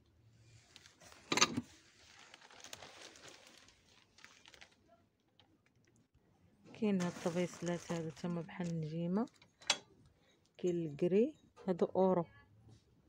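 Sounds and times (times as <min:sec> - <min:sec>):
soft rustling and handling: 0:00.6 - 0:05.9, 0:06.7 - 0:09.6.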